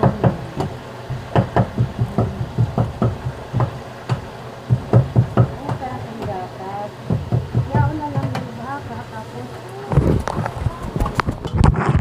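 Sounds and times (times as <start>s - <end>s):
rapid dull knocks: 0.0s - 8.6s.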